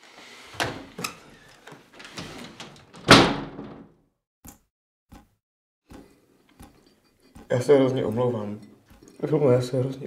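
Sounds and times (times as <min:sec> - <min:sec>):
door slamming shut: 0:02.0 - 0:04.0.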